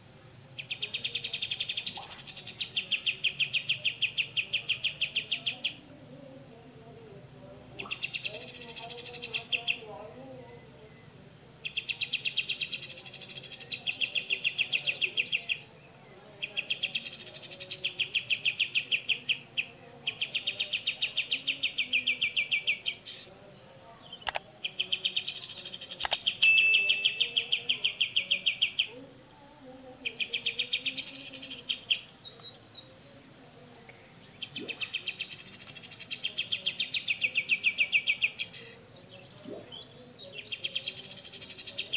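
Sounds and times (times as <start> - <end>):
bird singing rapid chatter: 7.8 - 9.8, 16.5 - 23.3, 24.1 - 28.9, 34.3 - 38.9, 39.5 - 41.9
high-pitched insect-like tone: 24.2 - 29.0, 33.7 - 36.2.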